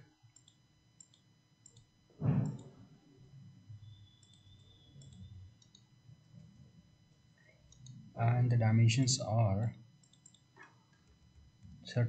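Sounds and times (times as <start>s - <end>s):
computer mouse clicking: 0.3s - 2.7s, 4.0s - 5.8s, 7.7s - 8.0s, 10.0s - 10.4s
brief low thud: 2.2s - 2.6s.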